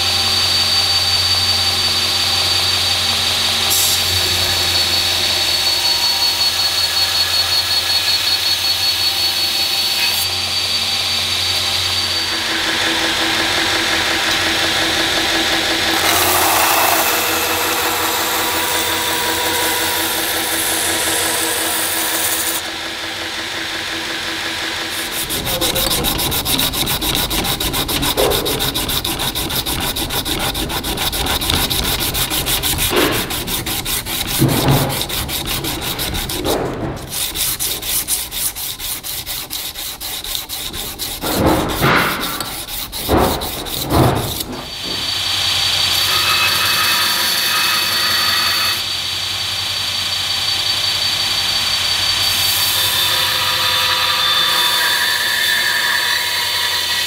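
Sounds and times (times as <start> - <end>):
belt grinder humming and whining: 0.0 - 57.0
blade grinding on abrasive belt: 2.3 - 49.2, 50.6 - 57.0
sandpaper rubbing on steel blade: 24.9 - 45.0.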